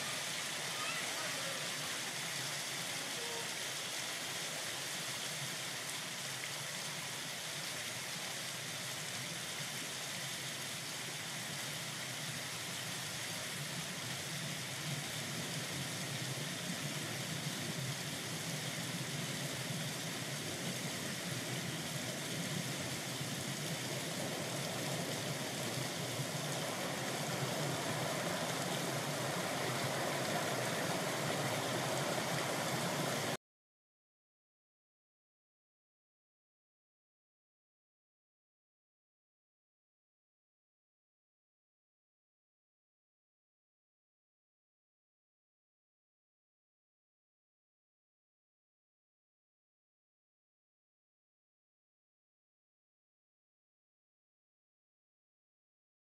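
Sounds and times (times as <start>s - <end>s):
water splashing off waterwheel: 0.0s - 33.4s.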